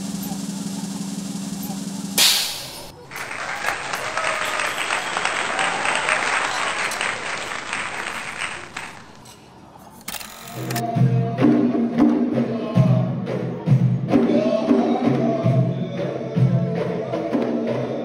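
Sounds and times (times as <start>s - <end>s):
music: 0.0s - 2.6s, 10.6s - 18.0s
loud rush of noise: 0.0s - 9.3s
crowd applauding: 2.8s - 9.3s.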